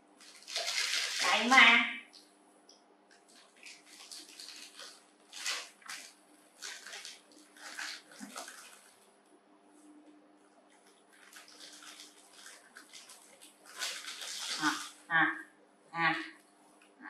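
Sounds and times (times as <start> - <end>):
faint steady hum: 0.0 - 17.0
plastic packet crinkling: 0.2 - 1.6, 3.1 - 9.1, 10.8 - 15.1
dry noodles crunching: 3.1 - 9.0, 10.7 - 15.1.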